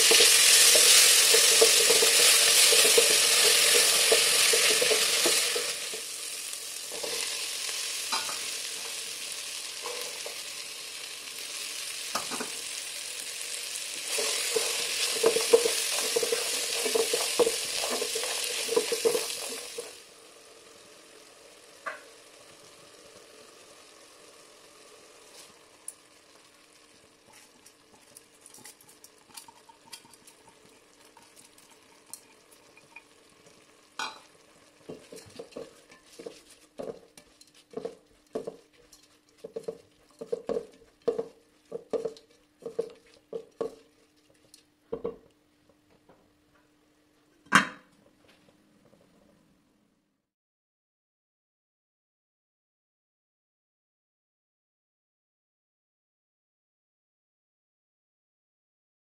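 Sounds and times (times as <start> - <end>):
spatula stirring rice: 0.0 - 6.2, 14.0 - 19.9, 34.8 - 44.7
spices sizzling in a pot: 0.0 - 45.4.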